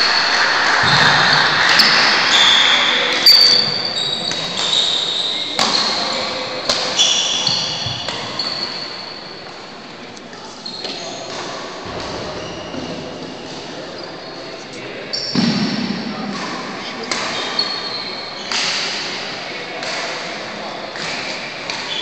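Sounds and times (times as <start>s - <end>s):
shoes squealing on wooden floor: 0.0s - 9.4s, 10.6s - 11.3s, 17.3s - 18.5s
racket hitting shuttlecock: 5.6s - 8.6s, 18.5s - 19.1s.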